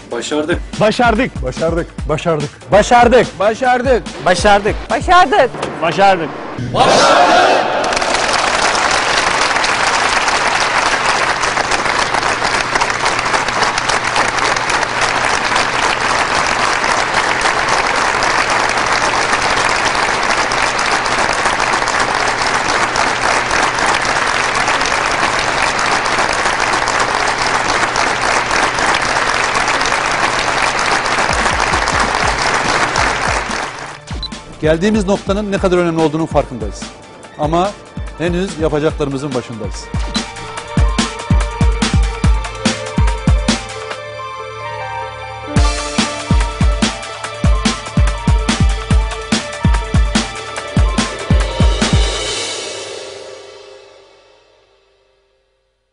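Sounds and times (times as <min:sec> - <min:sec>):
large crowd applauding: 0:06.8 - 0:34.0.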